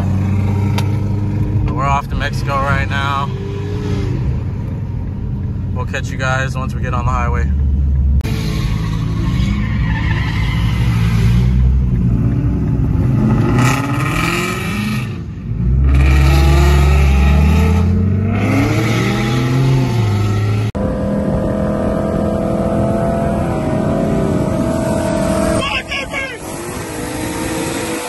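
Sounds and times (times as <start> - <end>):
cars accelerating hard: 8.2 - 28.0.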